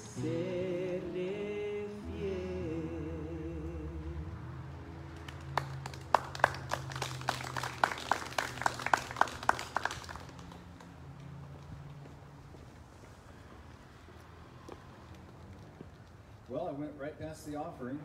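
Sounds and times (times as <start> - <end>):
guitar chord: 0.0 - 4.9
people clapping sparsely: 5.1 - 11.4.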